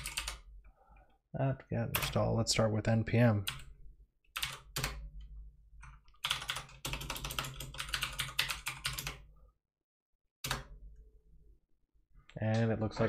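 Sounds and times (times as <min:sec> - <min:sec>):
keyboard typing: 0:00.0 - 0:00.5, 0:04.3 - 0:05.2, 0:05.8 - 0:09.3.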